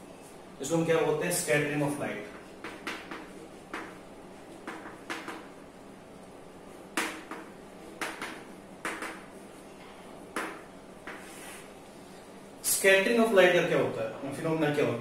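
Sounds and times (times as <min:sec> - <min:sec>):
chalk scratching on chalkboard: 0:11.0 - 0:11.7.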